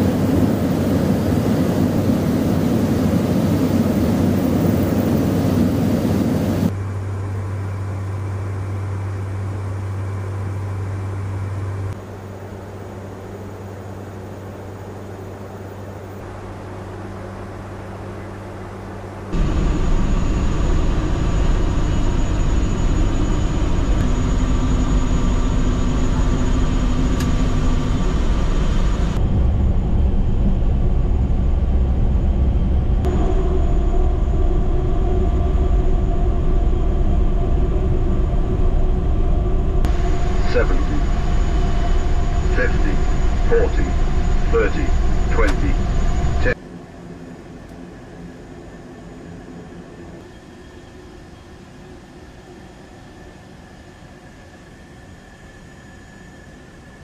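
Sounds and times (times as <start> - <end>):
turboprop aircraft cockpit rumble: 0.0 - 53.8
low hum: 0.0 - 57.0
steady tones: 33.0 - 46.6.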